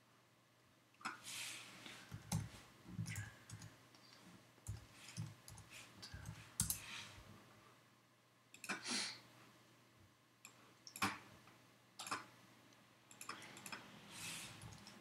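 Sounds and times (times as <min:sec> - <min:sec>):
keyboard typing clicks: 0:04.6 - 0:06.8, 0:13.1 - 0:13.8, 0:14.6 - 0:15.0.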